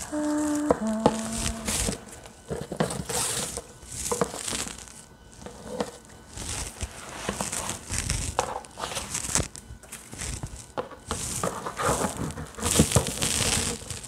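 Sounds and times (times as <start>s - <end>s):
gift box rustling and scraping: 5.4s - 13.9s.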